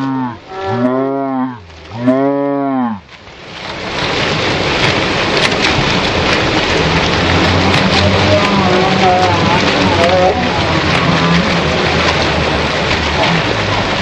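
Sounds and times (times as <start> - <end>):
steady rushing noise: 3.0 - 14.0
deep slowed-down tones: 3.9 - 14.0.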